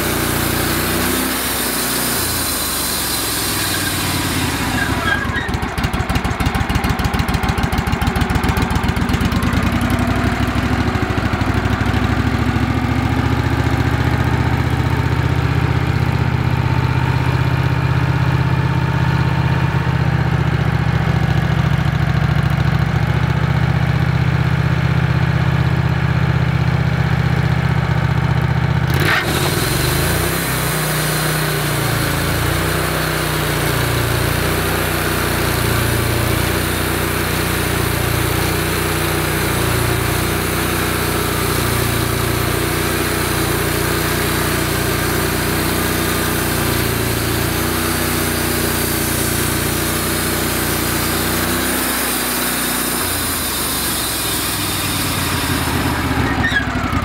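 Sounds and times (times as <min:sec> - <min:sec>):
band blade sawing log: 0:00.0 - 0:05.8, 0:29.0 - 0:57.0
band sawmill engine running: 0:00.0 - 0:57.0.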